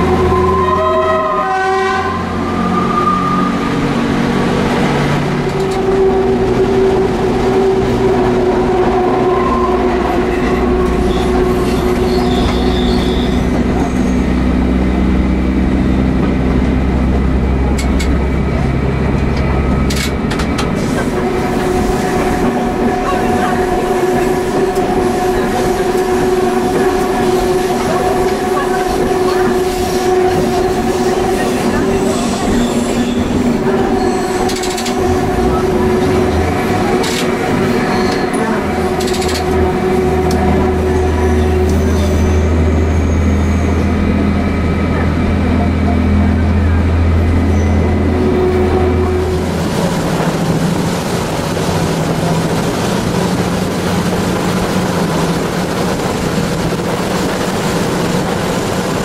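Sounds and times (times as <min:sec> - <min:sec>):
wheel-on-rail rumble: 0:02.2 - 0:59.0
wheel squeal: 0:10.5 - 0:14.4, 0:31.5 - 0:35.2, 0:37.1 - 0:39.5, 0:41.2 - 0:43.9, 0:47.5 - 0:48.7.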